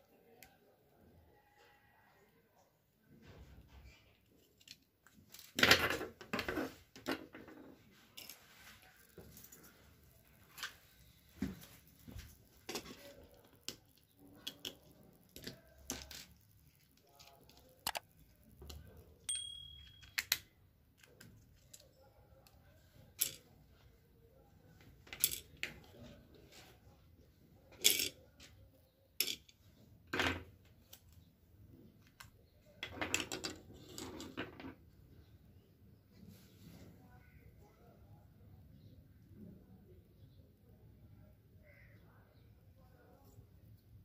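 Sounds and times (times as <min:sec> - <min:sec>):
rustling: 0:07.8 - 0:19.2.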